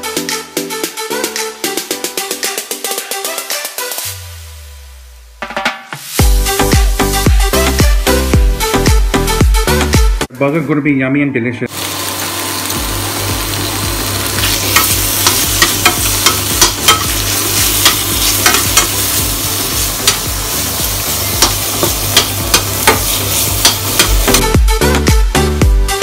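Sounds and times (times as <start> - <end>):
bacon sizzling in oil: 11.7 - 24.6
metal spoon stirring in pan: 14.4 - 24.5.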